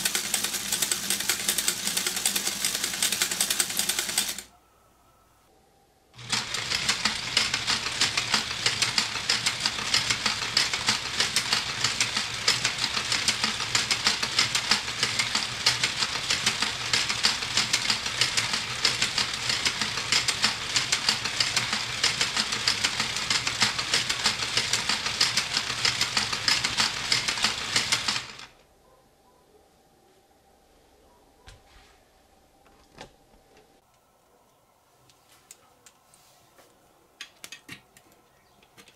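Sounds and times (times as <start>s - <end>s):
plastic gears clattering: 0.0s - 4.5s, 6.2s - 28.4s.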